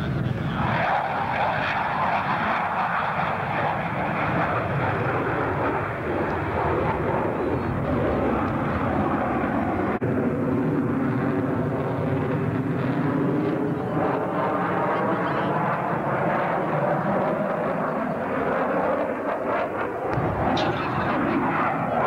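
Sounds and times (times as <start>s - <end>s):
jet aircraft roaring past: 0.0s - 22.0s
low hum: 20.1s - 22.0s.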